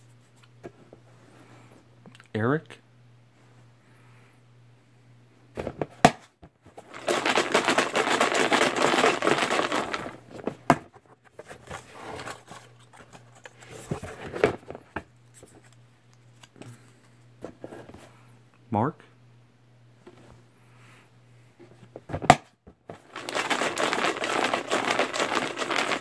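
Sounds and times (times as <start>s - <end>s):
paper slips rustling: 6.9s - 10.2s, 23.0s - 26.0s.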